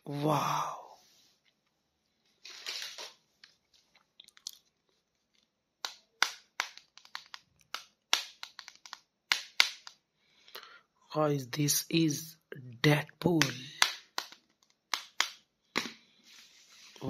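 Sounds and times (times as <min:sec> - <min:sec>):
plastic toy rustle: 0:02.4 - 0:04.0
plastic clicks and crackles: 0:05.3 - 0:10.0, 0:13.8 - 0:15.9.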